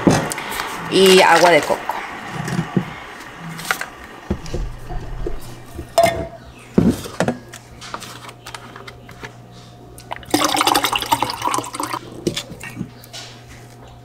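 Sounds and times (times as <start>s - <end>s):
liquid poured into a glass: 10.1s - 12.0s.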